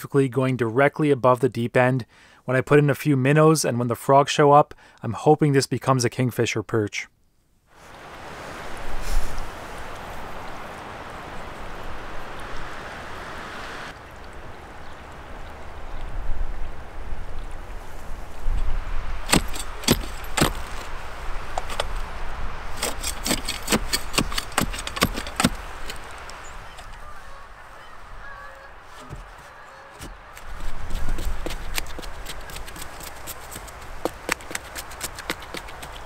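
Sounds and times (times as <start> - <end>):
metal digger blades clinking: 19.3 - 20.9, 22.8 - 26.1.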